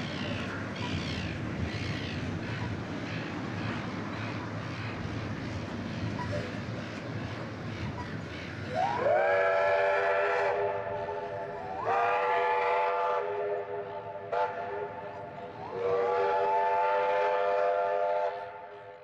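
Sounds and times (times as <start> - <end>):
steam locomotive whistle: 8.7 - 19.0.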